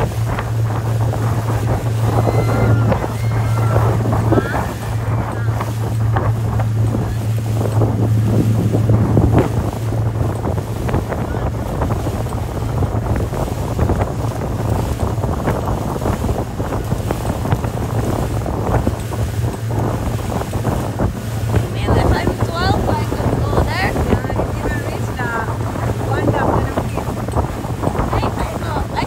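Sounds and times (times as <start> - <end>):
boat wake splashing: 0.0 - 29.0
motorboat engine humming: 0.0 - 29.0
wind buffeting microphone: 0.0 - 29.0.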